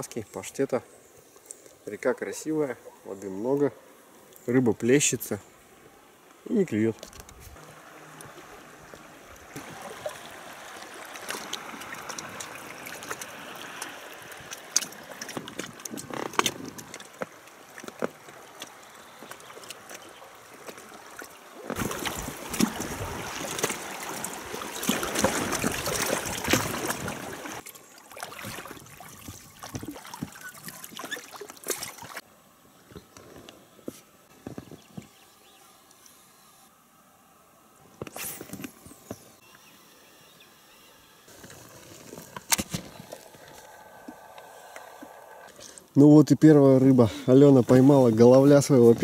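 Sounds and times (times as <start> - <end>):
water splashing and trickling: 6.4 - 32.3, 41.3 - 49.0.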